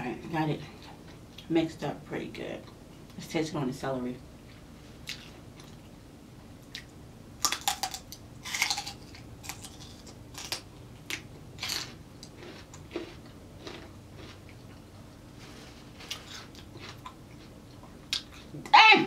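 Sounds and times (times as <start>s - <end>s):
crunchy chewing of celery: 5.0s - 5.9s, 6.7s - 18.6s.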